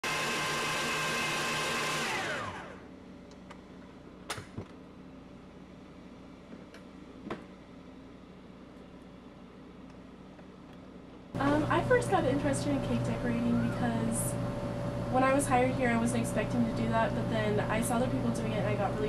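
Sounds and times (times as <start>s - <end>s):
stand mixer whisking: 0.0s - 2.8s.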